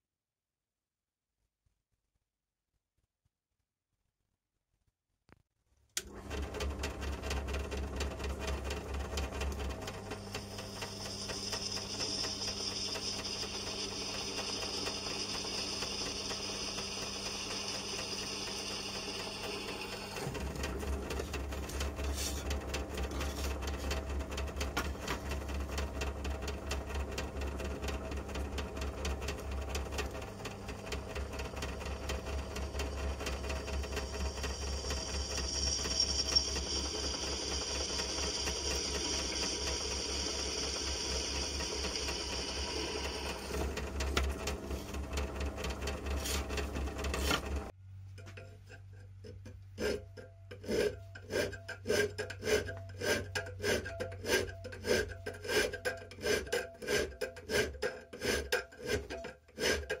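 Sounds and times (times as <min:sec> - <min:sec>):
drill press motor running: 0:06.0 - 0:47.8
high whine of drilling steel: 0:10.5 - 0:20.2, 0:33.7 - 0:43.5
hand filing on steel: 0:49.2 - 1:00.0.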